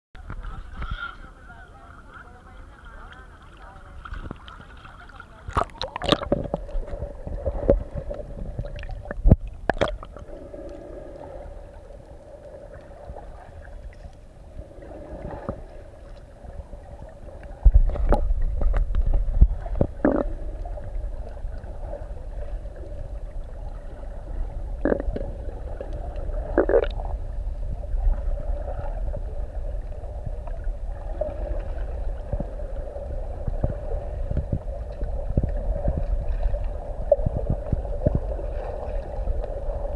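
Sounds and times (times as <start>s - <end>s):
faint steady hum: 0.2s - 39.9s
underwater rumble of water: 0.2s - 39.9s
clicks and gurgles: 3.6s - 16.3s, 16.9s - 22.2s, 22.8s - 27.2s.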